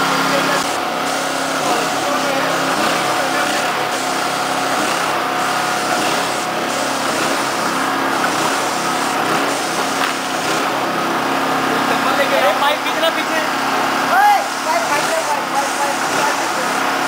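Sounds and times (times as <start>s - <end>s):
pump motor hum: 0.0s - 17.0s
paint spray hiss: 0.4s - 10.9s, 14.2s - 16.8s.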